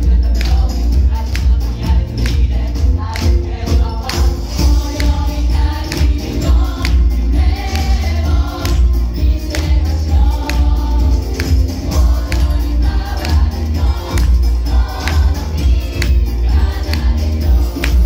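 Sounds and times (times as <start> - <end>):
choir singing upbeat song: 0.0 - 18.0
steady beat with heavy bass: 0.0 - 18.0.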